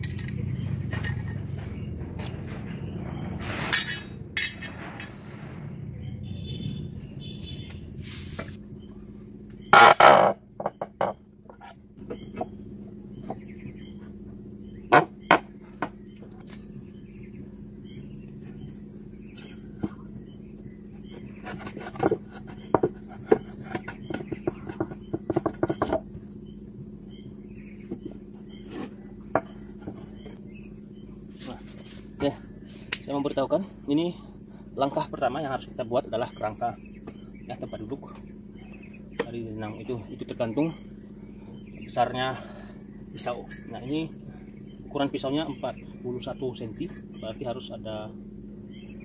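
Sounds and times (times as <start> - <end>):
high insect drone: 0.0 - 49.0
pump motor knocking on wood: 9.8 - 11.3, 21.4 - 26.2.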